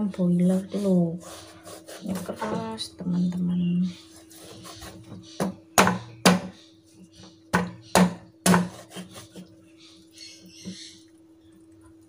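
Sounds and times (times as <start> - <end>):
cleaver chopping on wooden board: 5.4 - 6.6, 7.5 - 8.9.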